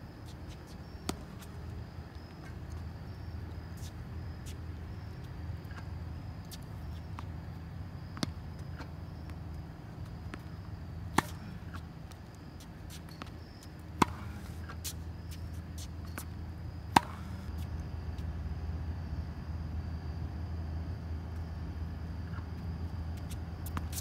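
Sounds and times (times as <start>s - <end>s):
steady low hum: 0.0s - 24.0s
tennis racket hitting ball: 10.2s - 11.9s, 14.0s - 15.0s, 16.9s - 17.5s.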